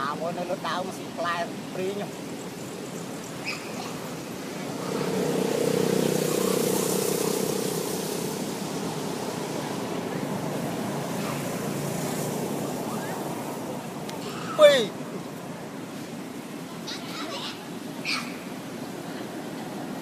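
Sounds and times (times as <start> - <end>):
vehicle engine passing by: 3.5 - 14.5.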